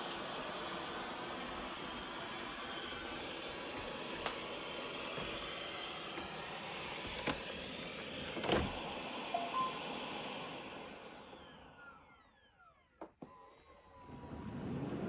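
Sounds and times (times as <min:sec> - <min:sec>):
fan winding down whine: 0:00.0 - 0:15.0
robot vacuum suction fan: 0:00.0 - 0:15.0
short electronic tones: 0:09.4 - 0:09.8.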